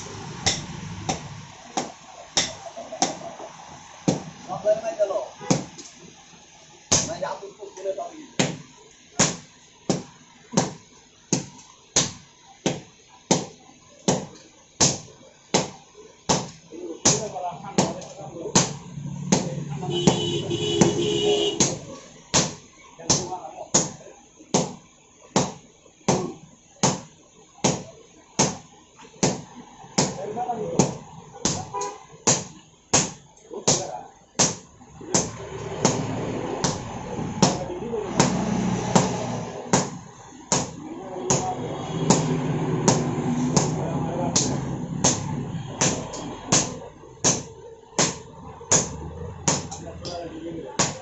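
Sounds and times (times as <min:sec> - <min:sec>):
sledgehammers striking steel on anvil: 0:00.4 - 0:01.3, 0:32.3 - 0:43.8.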